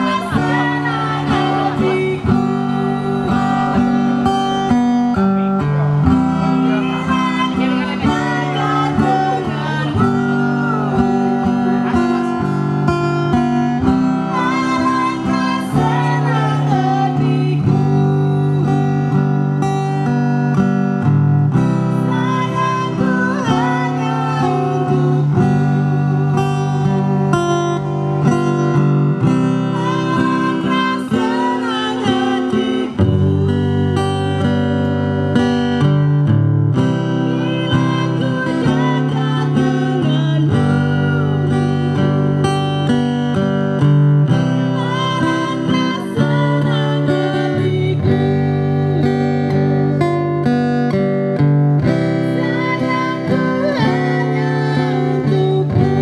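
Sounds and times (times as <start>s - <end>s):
person singing: 0.0s - 19.3s, 21.9s - 27.2s, 29.5s - 34.6s, 37.2s - 43.0s, 44.5s - 49.7s, 51.9s - 56.0s
acoustic guitar strumming: 0.0s - 56.0s.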